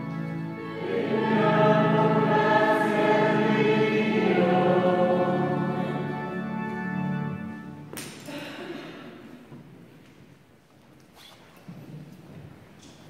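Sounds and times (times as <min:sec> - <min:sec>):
choir singing a slow chant: 0:00.6 - 0:06.6.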